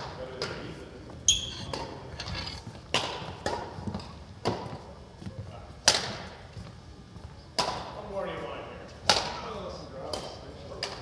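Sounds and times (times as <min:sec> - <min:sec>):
rackets hitting shuttlecock: 0:01.3 - 0:02.1, 0:02.9 - 0:04.7, 0:07.6 - 0:07.9, 0:09.1 - 0:09.4.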